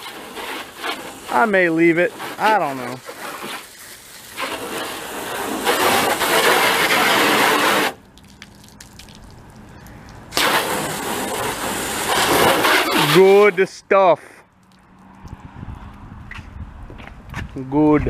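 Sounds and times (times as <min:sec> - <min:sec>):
hose spraying water on car: 0:00.0 - 0:09.3, 0:10.3 - 0:13.9.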